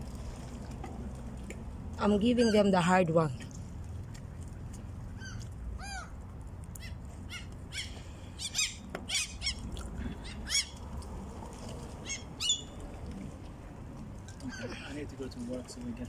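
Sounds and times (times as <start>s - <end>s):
gulls calling: 2.0s - 3.0s, 5.1s - 11.2s, 11.9s - 13.1s, 14.4s - 15.0s.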